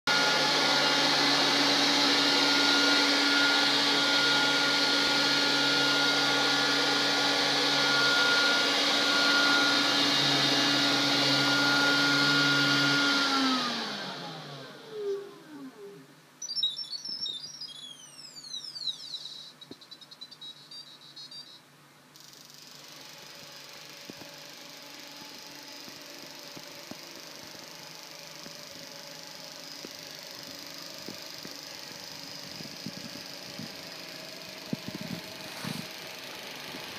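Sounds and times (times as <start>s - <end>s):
robot vacuum motor whine: 0.1s - 19.8s, 22.7s - 36.9s
electronic chirps and beeps: 16.4s - 21.6s.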